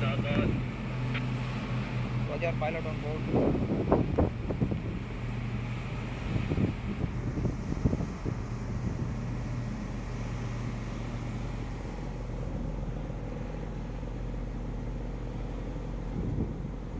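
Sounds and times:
low machinery hum: 0:00.0 - 0:16.9
wind on microphone: 0:03.2 - 0:11.8, 0:15.9 - 0:16.9.

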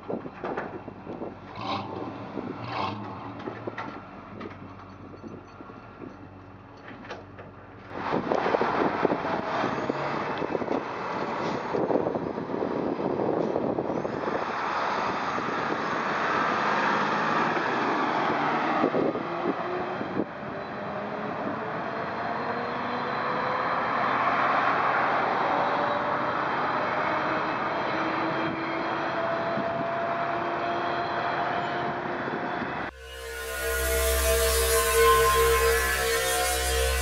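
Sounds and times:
traffic rushing: 0:00.0 - 0:37.0
vehicle accelerating: 0:01.0 - 0:04.7, 0:14.3 - 0:37.0.

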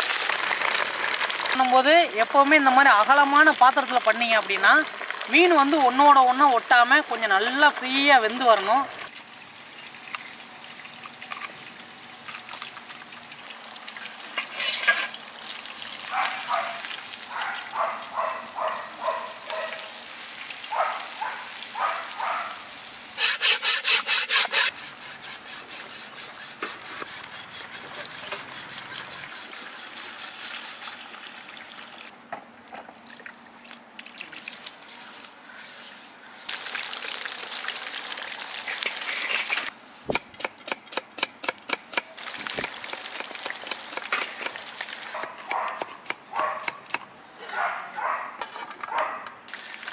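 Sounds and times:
fish deep-frying sizzle: 0:00.0 - 0:23.3, 0:29.6 - 0:32.1, 0:36.3 - 0:39.8, 0:42.2 - 0:45.2, 0:49.5 - 0:49.9
cleaver scraping wooden stump: 0:23.2 - 0:30.0.

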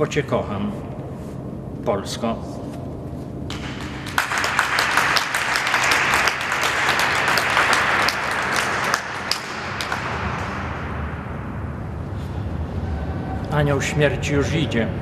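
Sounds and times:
audience applauding: 0:03.5 - 0:10.8.

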